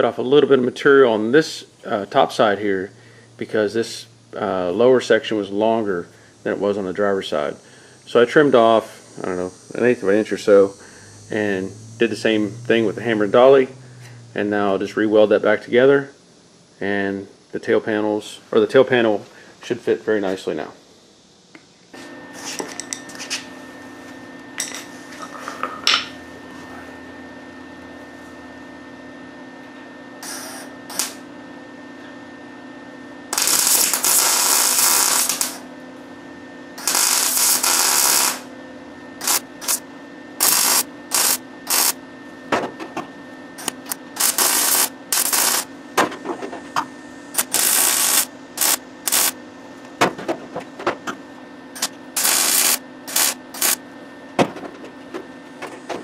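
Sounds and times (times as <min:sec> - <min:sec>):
welder arc buzzing: 0:00.0 - 0:17.3, 0:22.3 - 0:28.4, 0:30.1 - 0:31.3, 0:33.2 - 0:36.1, 0:36.7 - 0:38.6, 0:39.2 - 0:42.1, 0:43.6 - 0:46.0, 0:46.7 - 0:50.0, 0:51.7 - 0:54.0
steady hum: 0:00.0 - 0:56.0.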